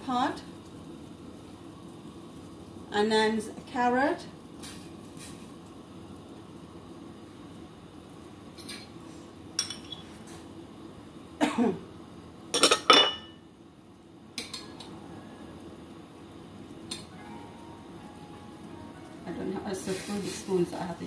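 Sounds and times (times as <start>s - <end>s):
low steady hum: 0.0s - 21.0s
ceramic dishes clattering: 9.6s - 10.1s, 12.6s - 13.4s.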